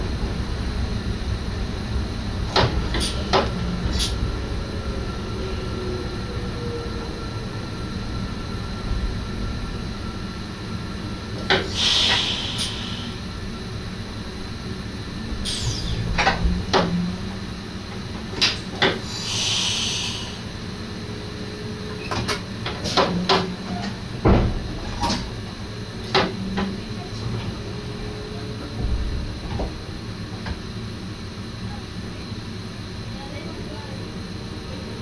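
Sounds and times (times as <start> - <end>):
clicks and knocks in train cab: 2.5 - 4.1, 11.4 - 12.2, 18.2 - 19.0, 22.0 - 25.3, 26.0 - 26.8
short hisses: 11.7 - 13.1, 19.1 - 20.4
low steady rumble: 12.7 - 18.4.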